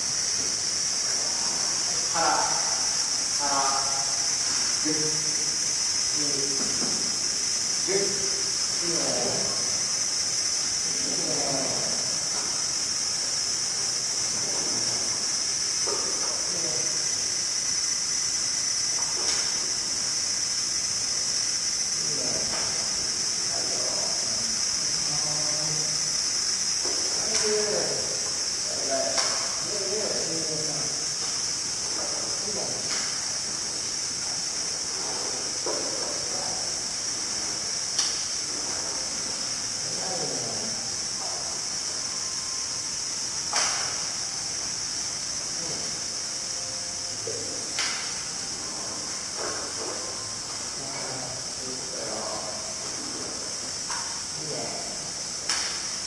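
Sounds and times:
high hiss: 0:00.0 - 0:56.0
sharp click: 0:37.9 - 0:38.3, 0:43.5 - 0:44.0, 0:47.7 - 0:48.2, 0:55.4 - 0:55.8.

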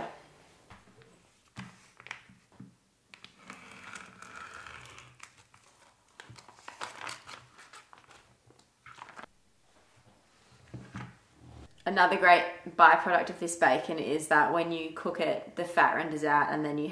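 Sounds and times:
plastic bag crinkling: 0:05.0 - 0:09.3.

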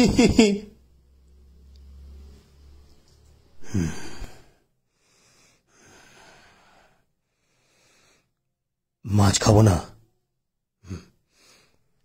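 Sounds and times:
man's heavy breathy exhale: 0:03.6 - 0:08.3
faint breath: 0:03.6 - 0:08.5, 0:11.0 - 0:12.0.

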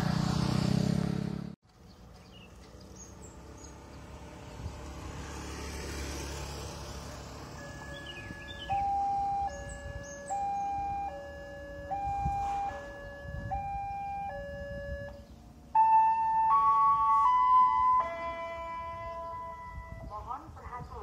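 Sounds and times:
two-tone crossing alarm: 0:07.4 - 0:20.1.

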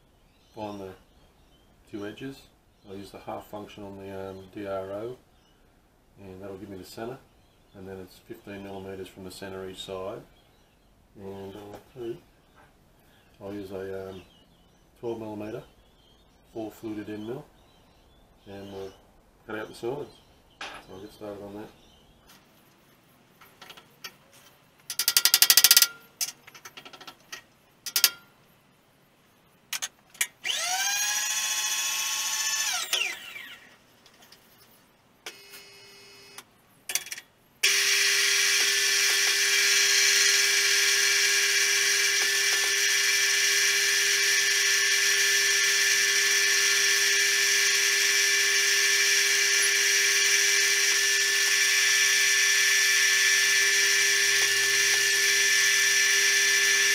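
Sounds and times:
milling machine spindle whine: 0:30.4 - 0:33.8, 0:37.6 - 0:56.9.

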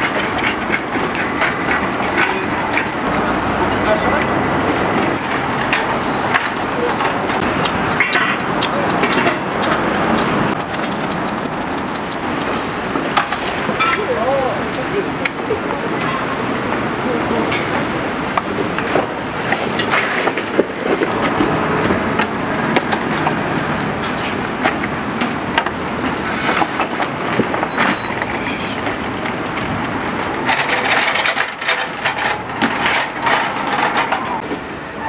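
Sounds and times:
wood creaking: 0:00.0 - 0:14.1
cart wheels clattering on paving: 0:00.0 - 0:35.0.

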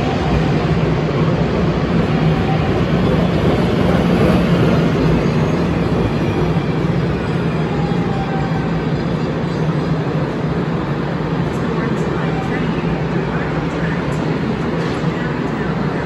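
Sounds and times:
light rail train passing: 0:00.0 - 0:16.0.

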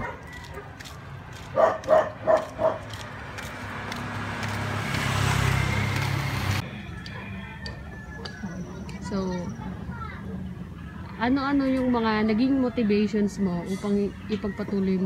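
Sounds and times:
dog barking: 0:00.0 - 0:00.8, 0:01.5 - 0:03.0
motorcycle passing: 0:00.0 - 0:07.6.

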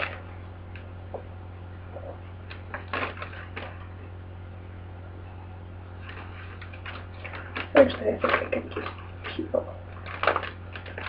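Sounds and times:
steady low hum: 0:00.0 - 0:11.0
plastic mailer bag crinkling: 0:02.5 - 0:04.0, 0:06.0 - 0:11.0
scissors cutting plastic bag: 0:10.0 - 0:11.0.

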